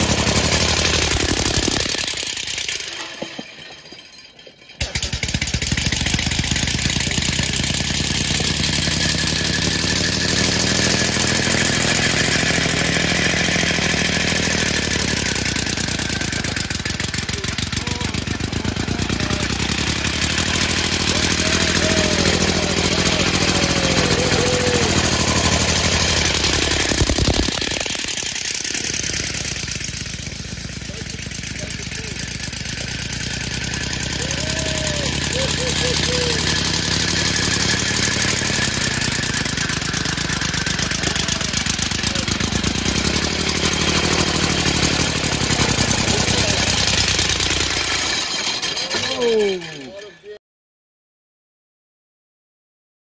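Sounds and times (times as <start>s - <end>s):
compressed-air engine pulsing: 7.1s - 48.1s.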